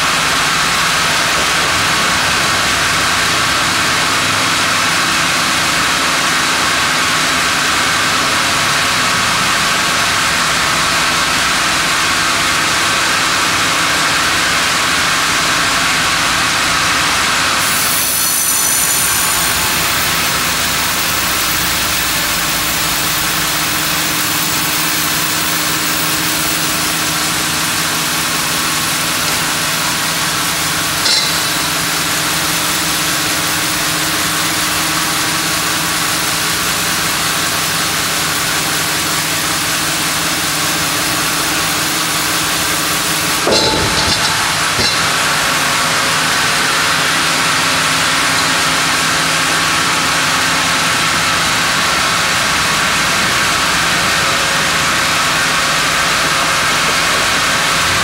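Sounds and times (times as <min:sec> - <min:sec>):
band sawmill cutting log: 0:13.4 - 0:58.0
high saw hiss: 0:17.6 - 0:30.2.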